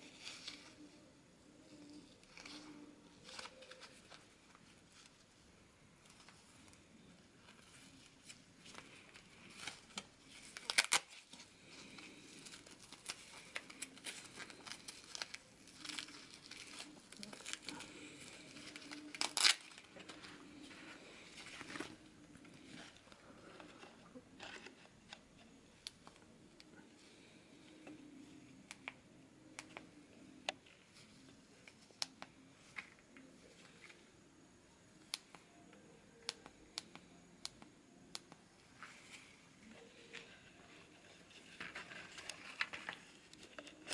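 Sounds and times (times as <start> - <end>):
arm band rustling and crinkling: 0.0 - 29.0, 38.6 - 43.9
velcro being pulled apart: 10.6 - 11.2, 18.8 - 19.8.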